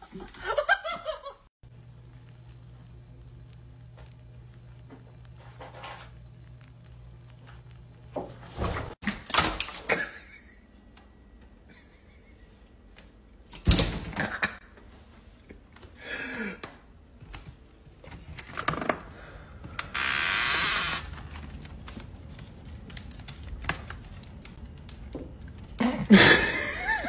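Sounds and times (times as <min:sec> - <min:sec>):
low steady hum: 0:01.2 - 0:09.0.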